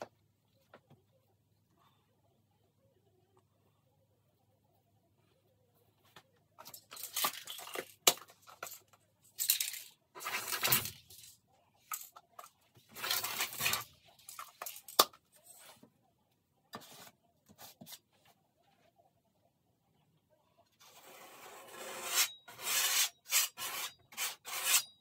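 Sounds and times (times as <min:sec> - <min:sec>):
paint strokes scraping canvas: 0:20.7 - 0:24.8.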